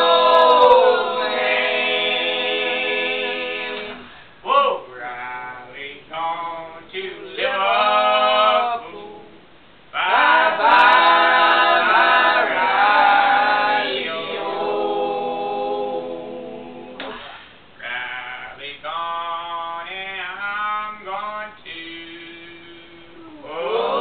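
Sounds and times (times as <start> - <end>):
unaccompanied group singing: 0.0 - 4.2, 6.6 - 17.2, 21.4 - 24.0.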